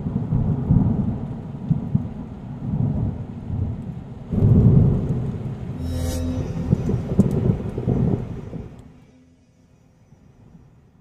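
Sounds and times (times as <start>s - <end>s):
rain: 0.0s - 5.8s
thunder rumbling: 0.0s - 5.8s, 6.5s - 9.0s.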